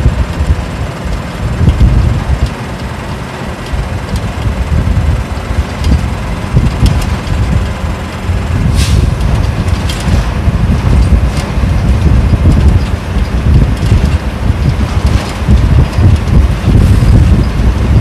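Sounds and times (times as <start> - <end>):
diesel bus engine rumble: 0.0 - 18.0
small rattles: 5.6 - 18.0
short hiss: 8.7 - 9.2.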